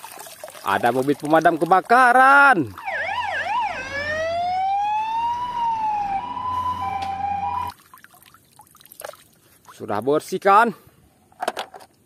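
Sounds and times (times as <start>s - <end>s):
fire engine siren: 2.8s - 7.7s.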